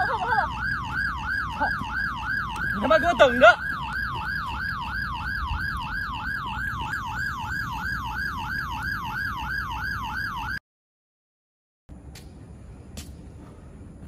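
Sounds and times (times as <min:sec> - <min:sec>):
police siren yelping: 0:00.0 - 0:10.6.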